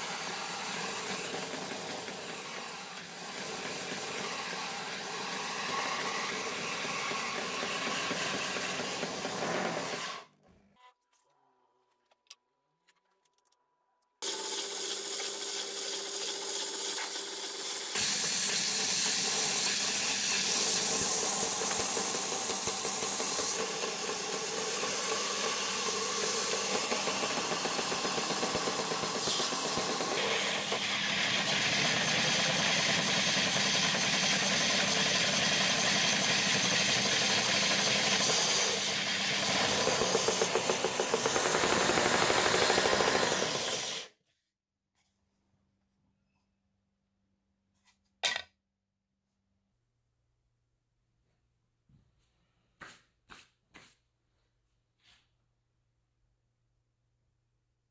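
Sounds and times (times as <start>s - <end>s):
wood sanding hiss: 14.2s - 44.1s
belt sander motor humming: 18.0s - 44.1s.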